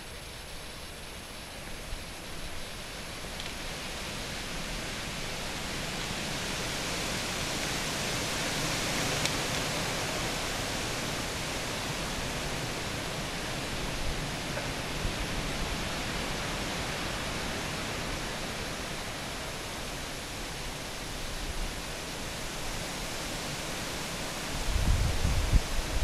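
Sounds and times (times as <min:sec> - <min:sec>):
faint click: 0:03.4 - 0:03.6.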